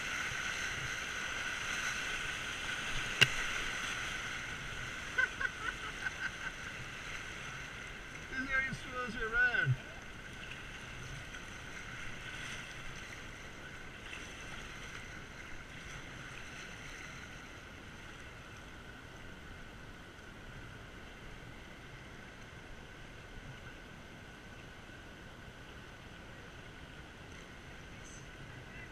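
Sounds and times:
whitewater river rushing: 0.0s - 16.0s.

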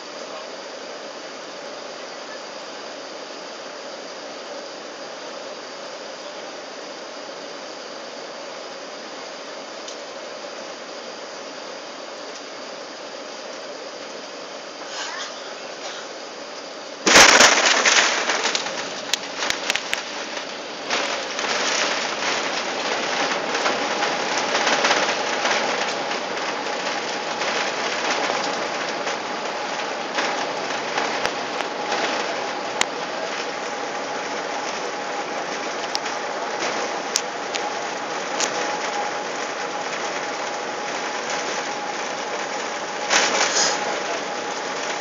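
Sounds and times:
faint steady hum: 0.0s - 45.0s
plane hard landing jolt: 17.0s - 45.0s.

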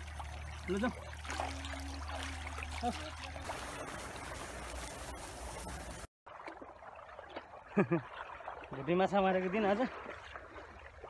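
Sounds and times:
water running: 0.0s - 6.1s.

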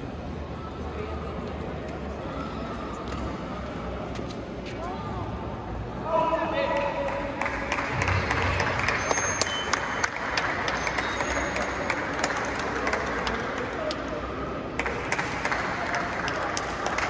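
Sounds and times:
crowd chatter: 0.0s - 17.0s
audience applauding: 7.1s - 13.7s, 14.8s - 17.0s.

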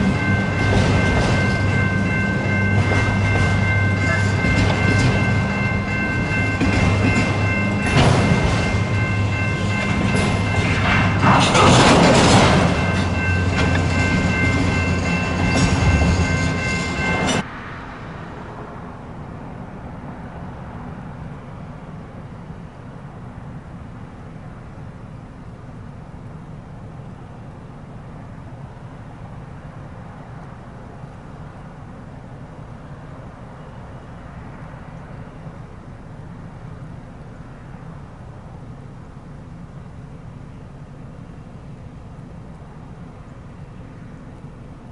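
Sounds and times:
train wheels rumbling on rails: 0.0s - 17.5s
freight train rolling on rails: 0.0s - 44.9s.

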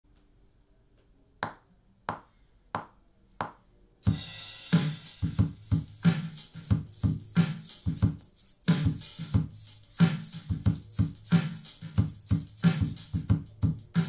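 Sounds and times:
hi-hat: 4.0s - 14.0s.

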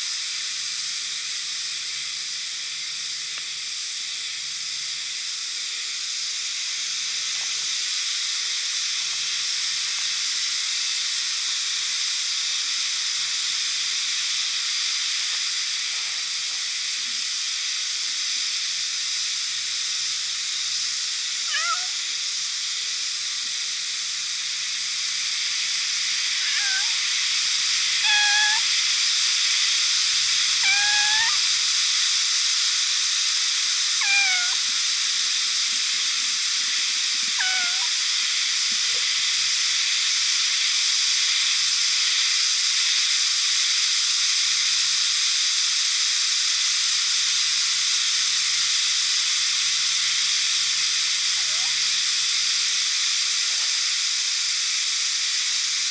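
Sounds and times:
steady high-pitched hiss: 0.0s - 55.9s
cat meowing: 21.5s - 22.0s, 26.4s - 27.0s, 28.0s - 28.8s, 30.6s - 31.6s, 34.0s - 34.8s, 37.3s - 37.9s.

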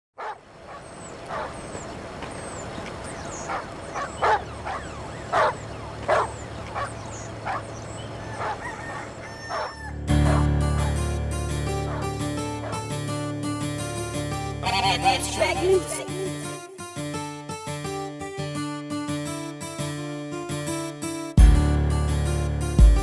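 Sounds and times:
birds calling loudly: 0.2s - 11.1s
plucked-string music: 10.0s - 23.0s.

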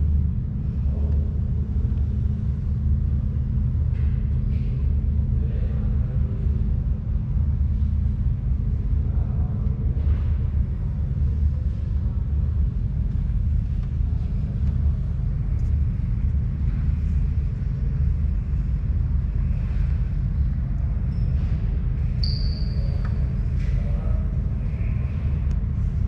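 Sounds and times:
steady low rumble: 0.0s - 26.0s
brief high squeak: 22.2s - 23.2s.

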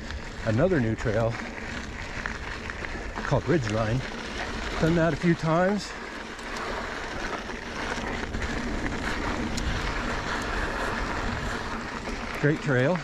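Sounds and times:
bike tyres rolling on gravel: 0.0s - 13.0s
small clicks and rattles: 0.0s - 13.0s.

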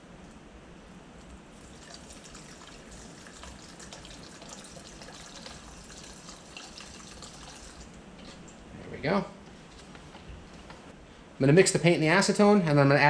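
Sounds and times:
liquid pouring into plastic cup: 1.6s - 8.0s.

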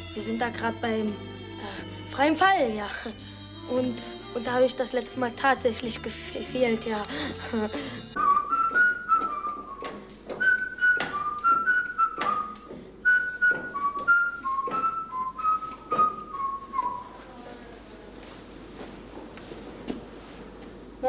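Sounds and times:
person whistling a tune: 8.1s - 17.2s.

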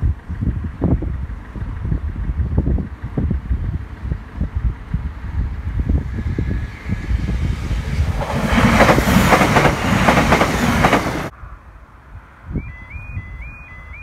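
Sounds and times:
train wheels clattering over rail joints: 7.3s - 11.3s.

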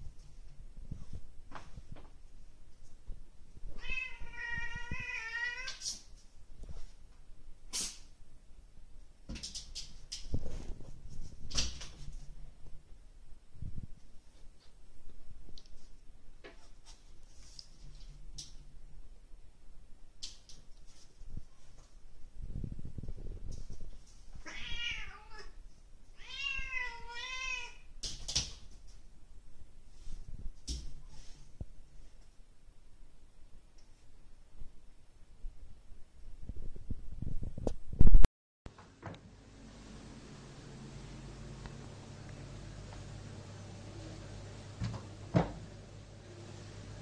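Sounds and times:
cat meowing: 3.8s - 5.8s, 24.4s - 25.6s, 26.2s - 27.9s
cat yowling: 3.8s - 5.8s.

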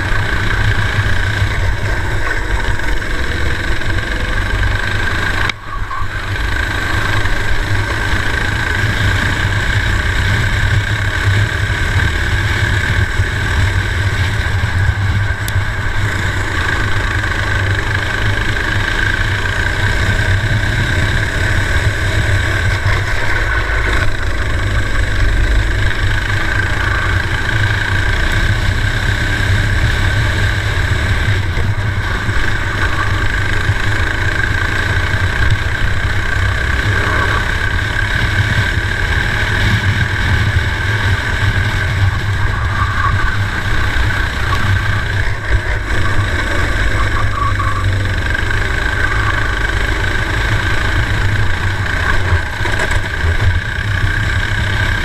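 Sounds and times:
kart engine running hard: 0.0s - 55.0s
steady low rumble: 0.0s - 55.0s.

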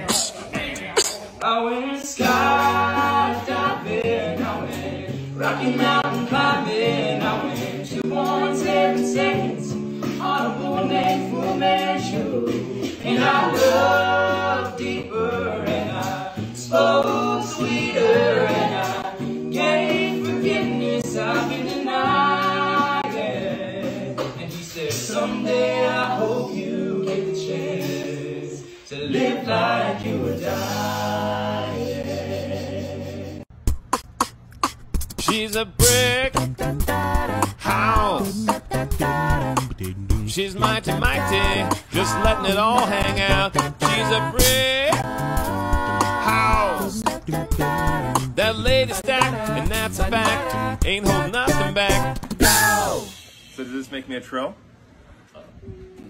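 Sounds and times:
a cappella group singing: 0.0s - 33.5s, 35.3s - 53.6s
sung bass line: 32.9s - 53.1s.

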